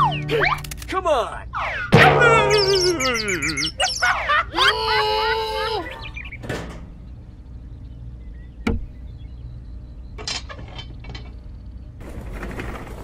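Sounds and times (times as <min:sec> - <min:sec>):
steady low hum: 0:00.0 - 0:12.3
plastic toy parts clicking: 0:00.6 - 0:00.9.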